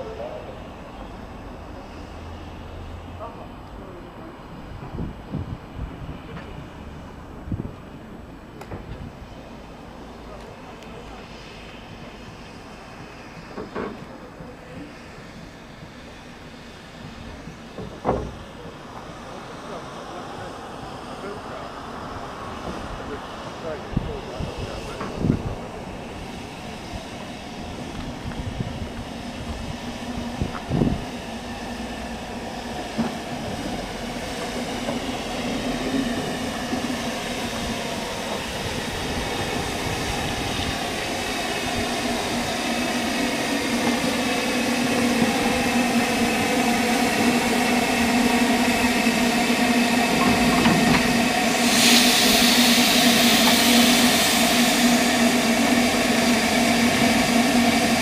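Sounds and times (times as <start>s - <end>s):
steam locomotive hum: 0.0s - 58.0s
loud steam hiss: 3.8s - 58.0s
locomotive clanks: 17.0s - 19.8s, 50.0s - 52.0s.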